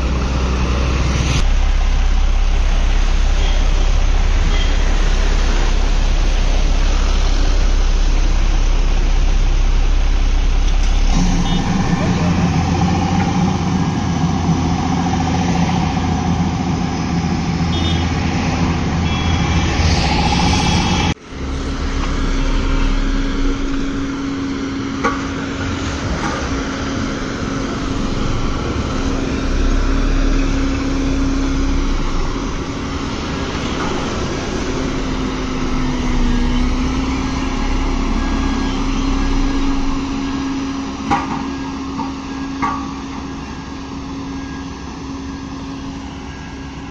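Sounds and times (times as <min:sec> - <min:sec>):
diesel engine running: 0:00.0 - 0:46.9.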